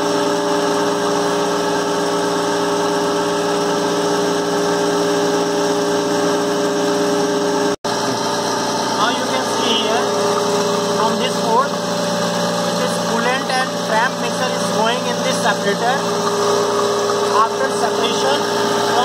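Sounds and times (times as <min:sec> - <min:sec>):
machine hum with fixed tones: 0:00.0 - 0:19.0.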